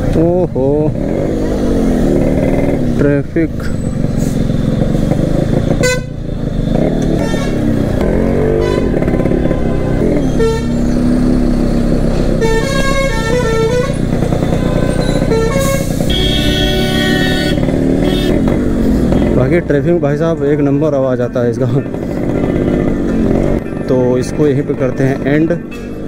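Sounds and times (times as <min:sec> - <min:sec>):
motorcycle engine running: 0:00.1 - 0:25.7
vehicle horns honking: 0:05.8 - 0:06.2, 0:06.8 - 0:11.0, 0:12.3 - 0:18.5.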